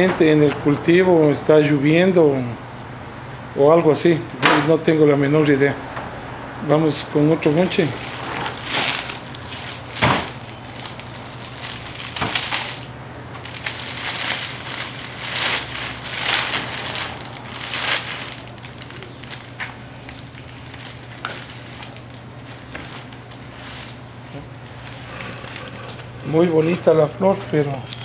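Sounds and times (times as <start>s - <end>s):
paper and plastic sleeves crinkling: 7.4s - 28.0s.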